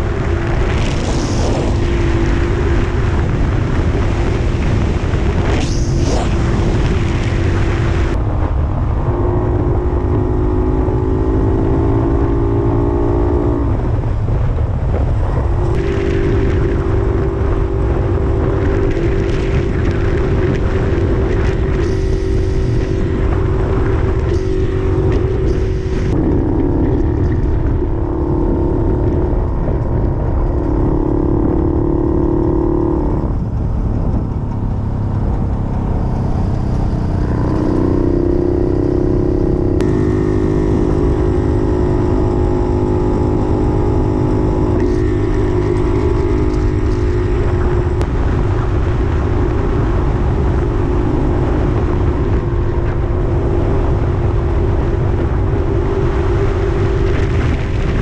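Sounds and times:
wind and road noise: 0:00.0 - 0:58.0
two-stroke engine running: 0:33.7 - 0:58.0.

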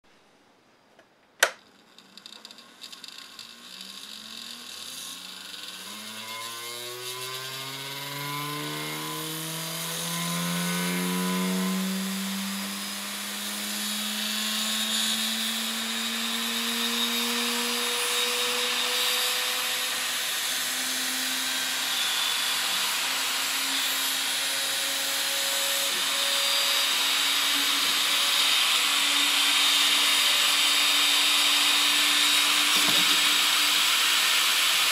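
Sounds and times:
sharp click: 0:01.0 - 0:01.6.

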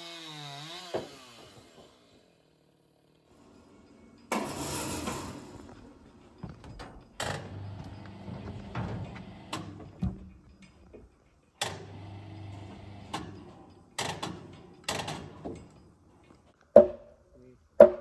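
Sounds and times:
knocks on wooden beam: 0:16.8 - 0:17.0, 0:17.8 - 0:18.0.

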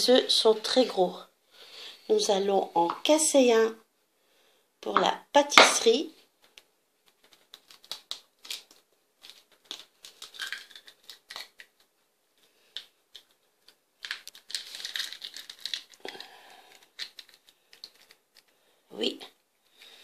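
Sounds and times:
eggshell cracking: 0:07.2 - 0:11.9, 0:12.6 - 0:18.5.

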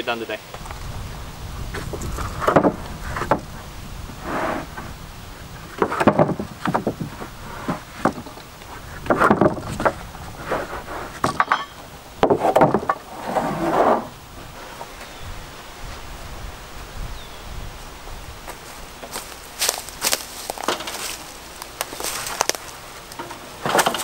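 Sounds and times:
wooden boards clunking and scraping: 0:01.6 - 0:15.2, 0:18.5 - 0:24.0.

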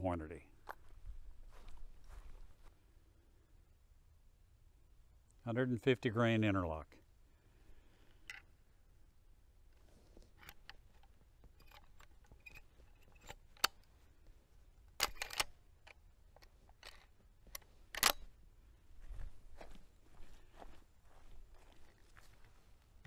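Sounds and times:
rifle lever clacking: 0:14.9 - 0:17.1, 0:17.9 - 0:18.2
cartridges clicking into magazine: 0:15.0 - 0:16.0, 0:17.9 - 0:18.2.

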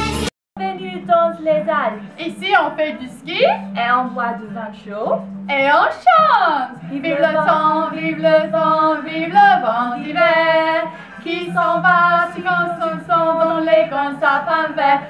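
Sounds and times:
women singing held notes: 0:06.6 - 0:15.0.

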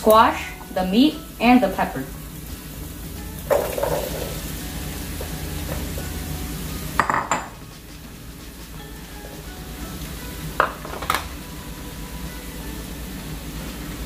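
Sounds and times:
vegetables sizzling in oil: 0:00.0 - 0:14.0
dishes clinking: 0:03.5 - 0:04.4, 0:07.0 - 0:07.6.

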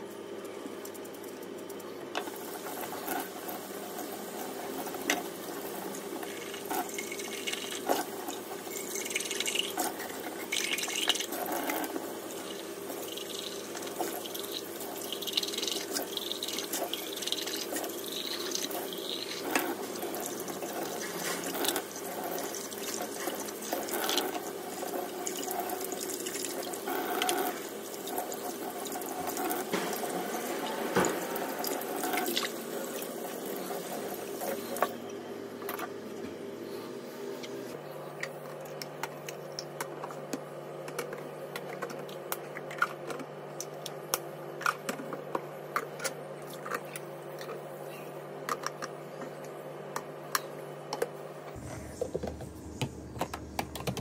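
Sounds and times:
tap water running into sink: 0:02.2 - 0:34.9.

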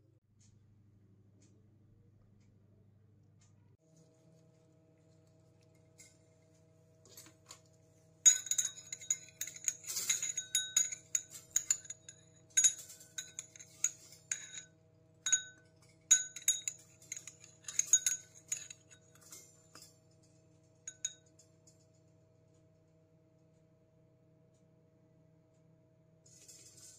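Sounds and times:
fork clinking on ceramic bowl: 0:08.3 - 0:14.7, 0:15.3 - 0:19.8, 0:20.9 - 0:21.4.

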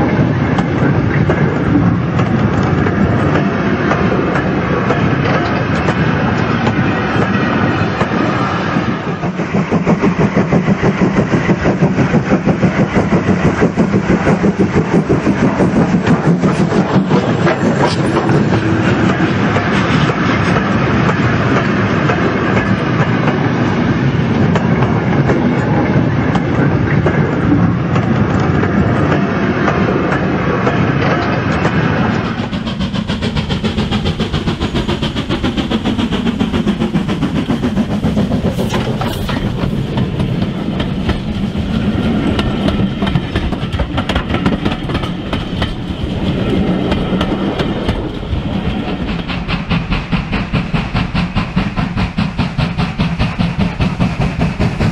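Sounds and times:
model train wheels clicking: 0:00.0 - 0:54.9
steady train rumble: 0:00.0 - 0:54.9.

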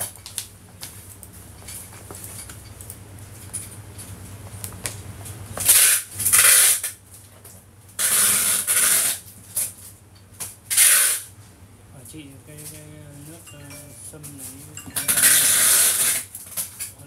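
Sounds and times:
low steady hum: 0:11.5 - 0:16.1.

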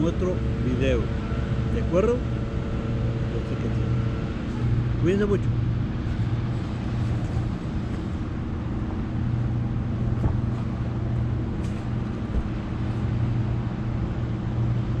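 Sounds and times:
car engine idling: 0:00.0 - 0:15.0
soft thump: 0:10.2 - 0:10.8, 0:11.6 - 0:12.7.

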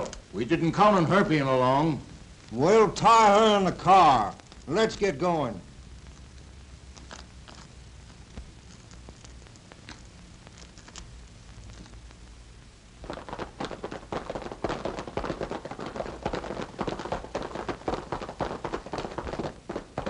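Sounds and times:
horses galloping: 0:13.0 - 0:20.0.

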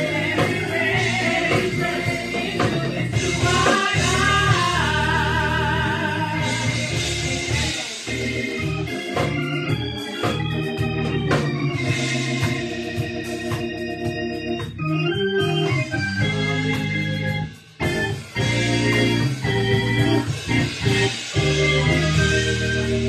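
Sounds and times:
bass line: 0:00.0 - 0:23.0
electric organ chords: 0:00.0 - 0:23.0.

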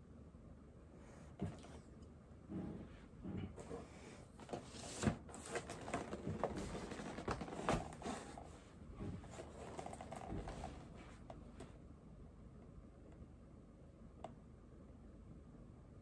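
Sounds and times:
cardboard box being handled: 0:04.4 - 0:08.5.

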